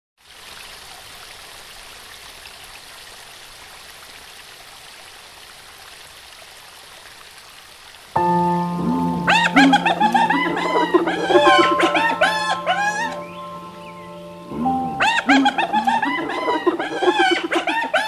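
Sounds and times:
music with held tones: 8.2 - 17.5
waterfall rushing: 8.2 - 18.0.

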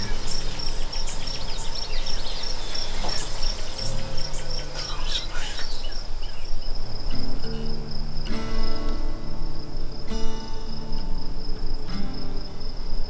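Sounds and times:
bird chirps: 0.0 - 7.7
crickets chirping: 0.0 - 13.0.

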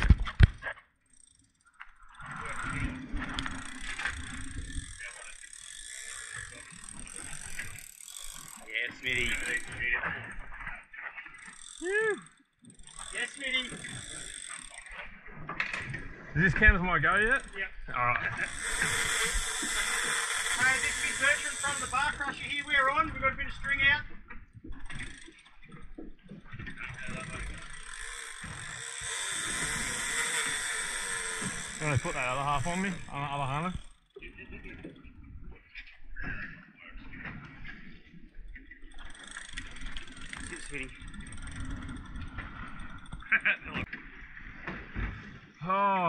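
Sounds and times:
fishing reel ratchet clicking: 1.0 - 15.1, 16.6 - 23.8, 24.8 - 34.2, 38.8 - 43.6
voices: 8.7 - 10.3, 11.8 - 12.3, 13.1 - 14.0, 16.4 - 19.4, 20.5 - 24.0, 31.7 - 34.8, 40.5 - 41.0.

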